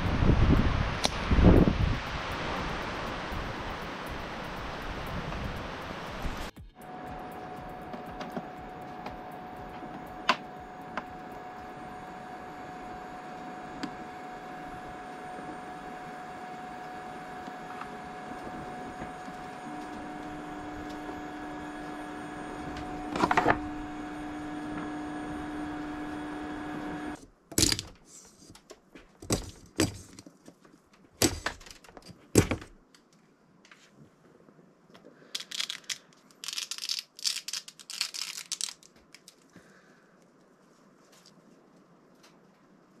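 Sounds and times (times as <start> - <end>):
printer humming: 1.5 - 27.2.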